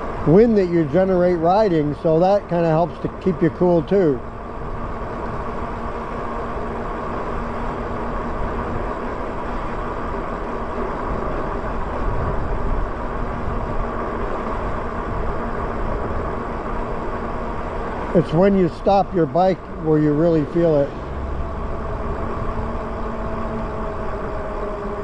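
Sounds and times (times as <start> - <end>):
faint steady hum: 0.0 - 25.0
wind on microphone: 7.4 - 18.2, 19.4 - 25.0.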